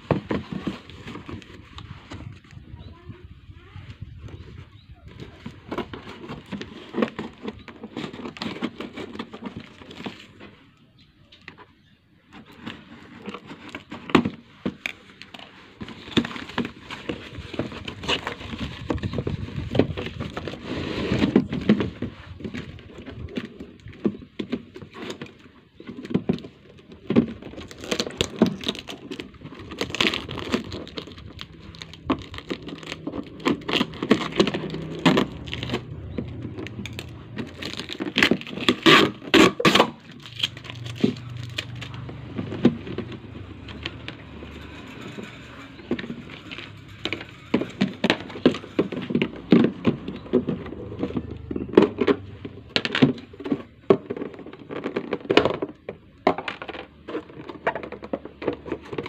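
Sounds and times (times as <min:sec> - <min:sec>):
plastic containers crinkling and clattering: 0:00.0 - 0:02.8, 0:04.2 - 0:59.0
cardboard box tearing open: 0:27.2 - 0:43.2.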